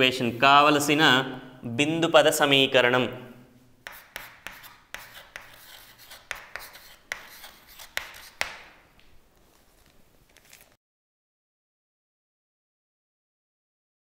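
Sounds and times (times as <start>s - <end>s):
chalk scratching strokes: 3.8s - 8.8s
chalk tapping on chalkboard: 3.8s - 8.8s.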